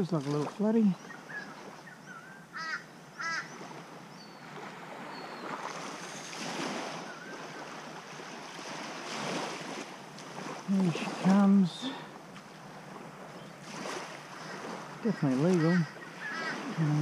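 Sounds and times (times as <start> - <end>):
small waves lapping on shore: 0.0 - 17.0
faint bird chirps: 0.9 - 6.4
harsh bird calls: 0.9 - 7.7, 14.3 - 17.0.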